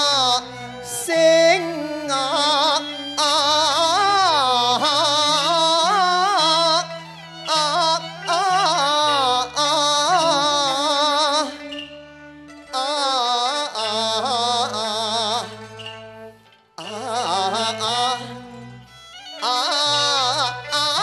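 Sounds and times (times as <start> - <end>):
opera singing with vibrato: 0.0 - 11.5
traditional ensemble accompaniment: 0.0 - 21.0.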